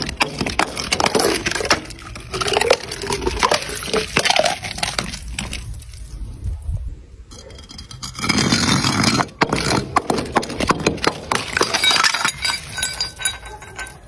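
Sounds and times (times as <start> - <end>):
glass bottle shattering: 0.0 - 5.6, 8.1 - 14.0
glass scattering over concrete: 0.0 - 5.9, 7.6 - 14.0
bottle clinking down steps: 9.4 - 14.0.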